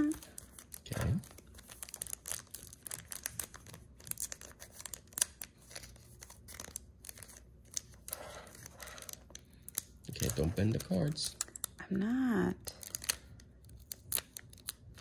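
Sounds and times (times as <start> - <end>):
foil wrapper crinkling and tearing: 0.0 - 11.8, 12.6 - 15.0.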